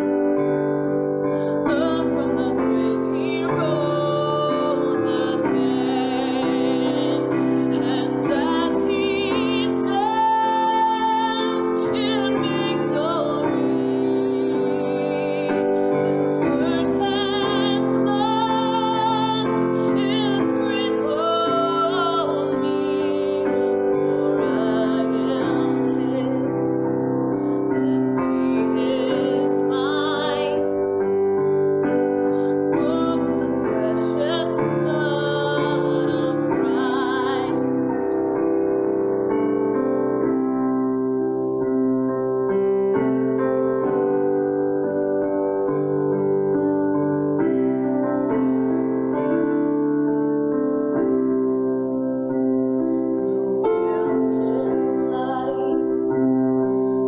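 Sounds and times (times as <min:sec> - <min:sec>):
grand piano chords: 0:00.0 - 0:57.0
woman singing with vibrato: 0:01.3 - 0:31.0, 0:32.0 - 0:38.6, 0:53.6 - 0:57.0.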